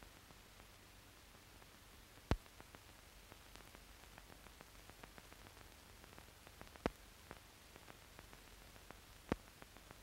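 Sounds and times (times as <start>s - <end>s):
film soundtrack hiss and hum: 0.0s - 10.0s
crackling clicks: 3.5s - 9.8s.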